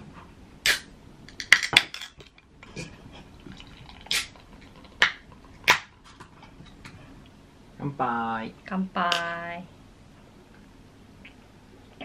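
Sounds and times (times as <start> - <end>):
beer pouring into glass: 3.4 - 5.0.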